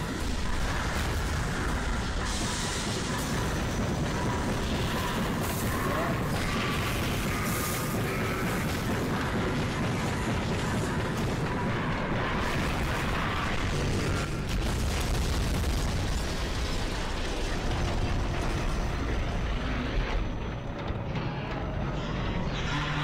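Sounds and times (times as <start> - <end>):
explosions and rumble: 0.0 - 23.0.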